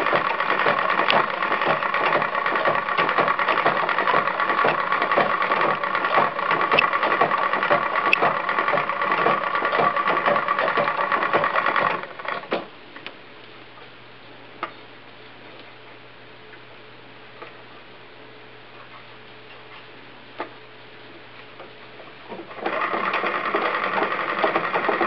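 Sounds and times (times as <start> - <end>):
sewing machine clatter: 0.0 - 12.6, 22.3 - 25.0.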